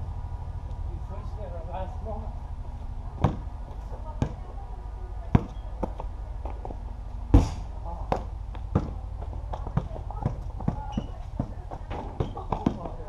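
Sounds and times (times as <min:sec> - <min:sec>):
ball hitting backboard and rim: 0:03.2 - 0:03.5, 0:05.3 - 0:06.0, 0:07.3 - 0:12.9
basketball thudding on pavement: 0:03.2 - 0:04.5, 0:05.3 - 0:13.0.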